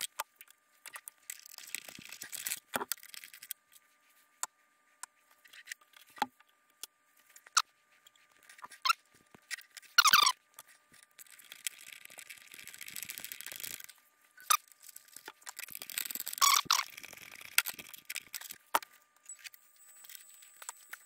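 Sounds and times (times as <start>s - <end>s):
short high-pitched squeaks: 8.5s - 10.4s, 15.9s - 18.5s.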